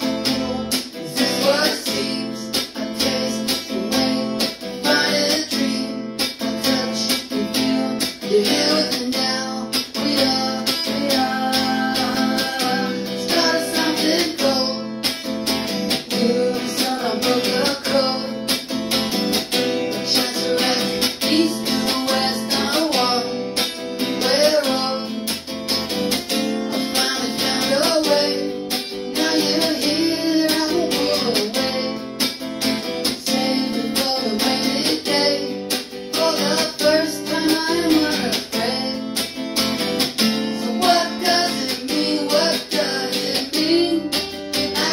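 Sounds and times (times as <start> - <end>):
guitar strumming: 0.0 - 44.9
man singing: 0.0 - 44.9.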